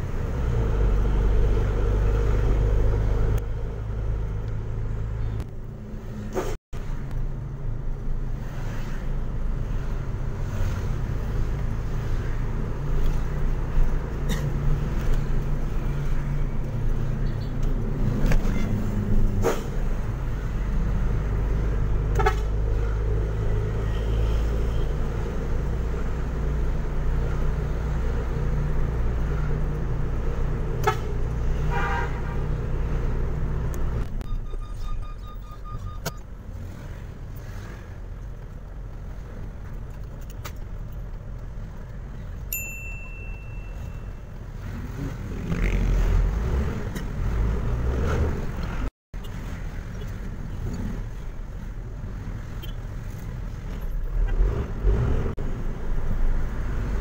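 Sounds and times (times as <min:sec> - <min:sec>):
horn toot: 0:30.8 - 0:32.5.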